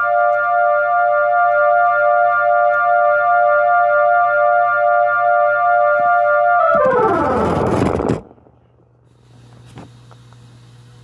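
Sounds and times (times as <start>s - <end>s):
electronic keyboard siren tone: 0.0s - 8.6s.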